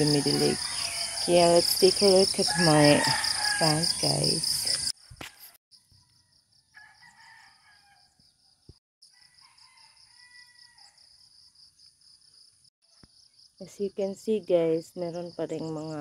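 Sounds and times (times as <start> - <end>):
crickets chirping: 0.0 - 5.1
distant rooster crowing: 2.5 - 4.0, 6.0 - 8.2, 9.0 - 11.0.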